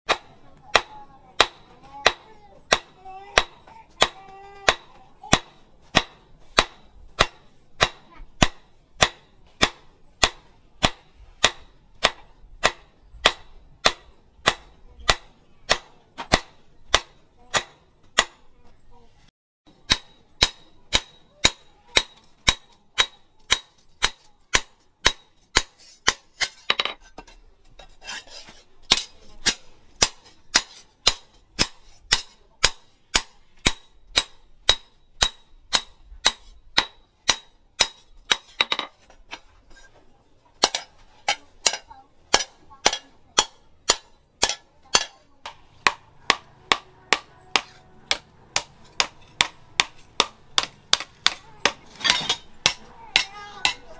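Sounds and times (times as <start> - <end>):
hammer striking metal on anvil: 0.1 - 18.4, 19.7 - 27.4, 28.9 - 39.4, 40.6 - 53.9.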